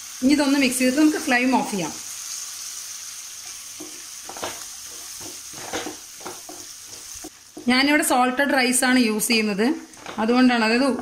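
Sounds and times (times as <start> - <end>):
food sizzling in oil: 0.0 - 11.0
spatula scraping and tapping pan: 3.7 - 7.8.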